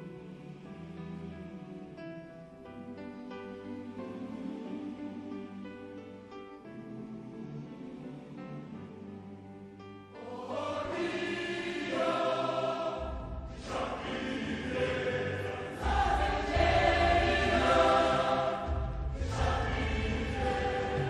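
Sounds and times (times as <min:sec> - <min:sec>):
choir singing long chords: 0:10.1 - 0:21.0.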